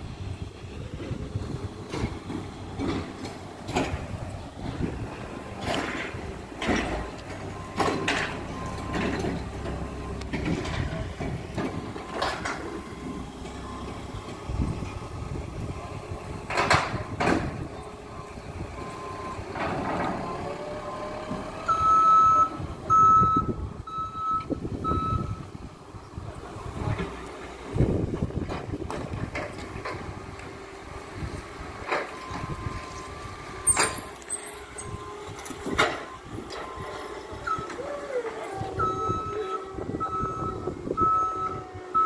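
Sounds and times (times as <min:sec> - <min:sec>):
forklift engine: 0:00.0 - 0:42.0
forklift reversing alarm beeping: 0:06.2 - 0:25.6, 0:32.1 - 0:42.0.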